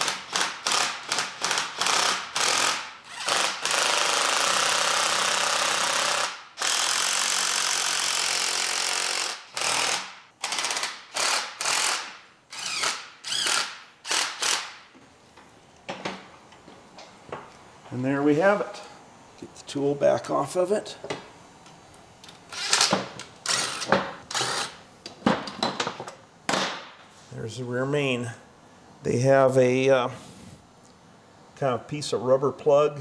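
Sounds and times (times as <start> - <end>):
cordless drill running: 0.0 - 14.8.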